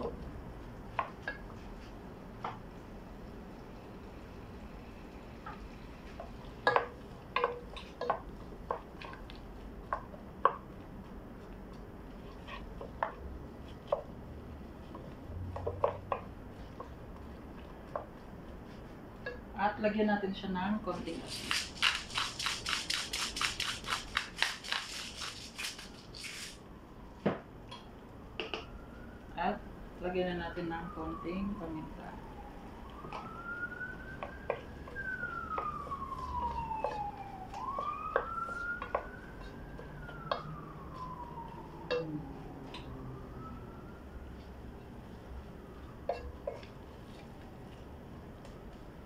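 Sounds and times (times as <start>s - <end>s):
wooden spoon stirring onions: 0.0s - 19.8s, 30.7s - 49.0s
spoon knocking against metal pot: 6.6s - 8.2s.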